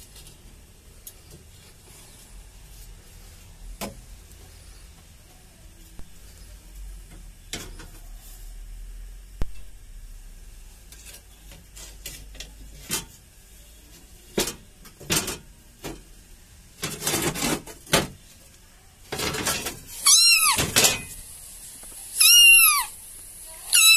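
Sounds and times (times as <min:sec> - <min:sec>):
knocks and scrapes: 0:10.9 - 0:13.3, 0:16.8 - 0:18.2, 0:19.1 - 0:20.0
high animal cries: 0:20.0 - 0:20.7, 0:22.2 - 0:23.0, 0:23.7 - 0:23.9.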